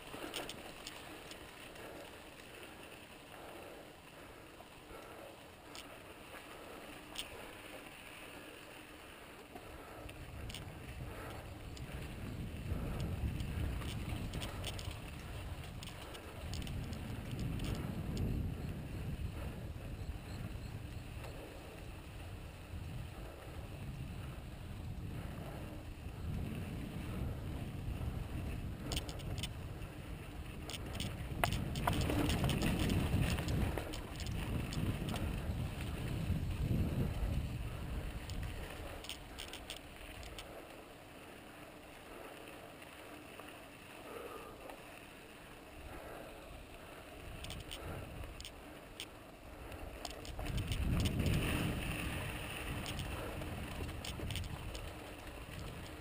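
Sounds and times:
bike clicks and rattles: 0.0s - 56.0s
tyre noise on dirt: 6.4s - 19.7s, 20.5s - 40.4s, 46.4s - 56.0s
wind rumbling on microphone: 9.6s - 40.8s, 45.7s - 56.0s.

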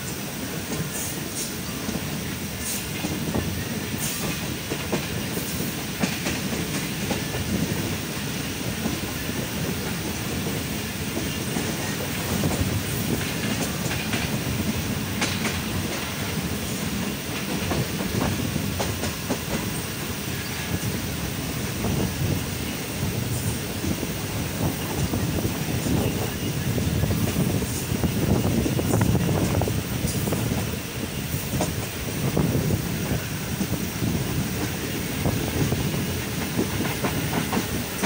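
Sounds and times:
train wheels rumbling: 0.0s - 38.0s.

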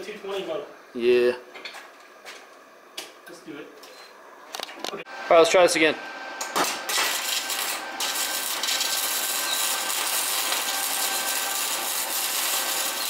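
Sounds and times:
welder arc crackling hiss: 6.4s - 13.0s.

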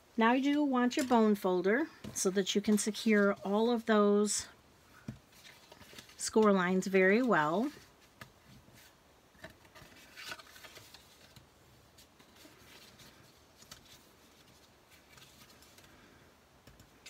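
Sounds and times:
paper rustling: 5.3s - 16.0s.

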